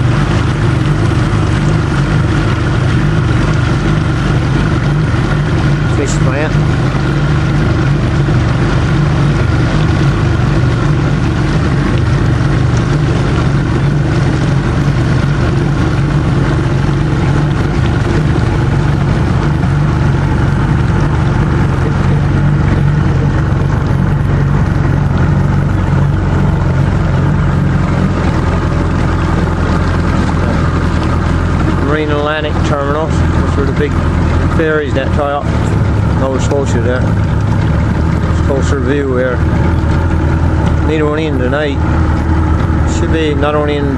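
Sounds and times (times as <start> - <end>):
motorboat engine running: 0.0 - 43.9.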